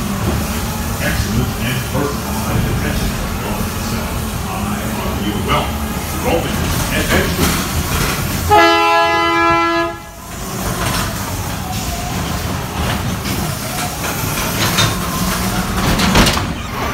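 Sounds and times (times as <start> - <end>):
ride car rumbling along track: 0.0 - 16.9
horn blasting a held chord: 8.4 - 10.2.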